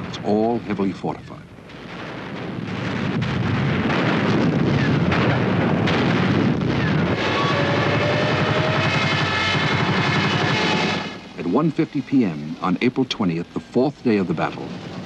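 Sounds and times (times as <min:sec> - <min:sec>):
gunfire and explosions: 0:01.6 - 0:11.5.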